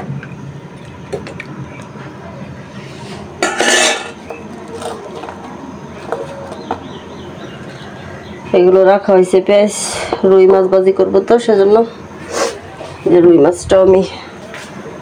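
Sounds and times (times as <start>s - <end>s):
metal spoon scraping a pan: 3.4s - 4.2s
steel bowl clattering: 3.4s - 4.2s.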